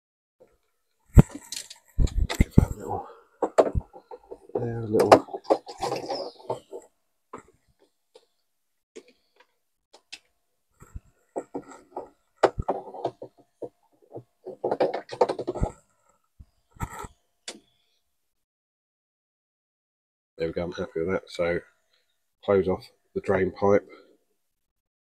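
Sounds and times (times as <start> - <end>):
stick knocking and scraping in drum: 14.1 - 15.8.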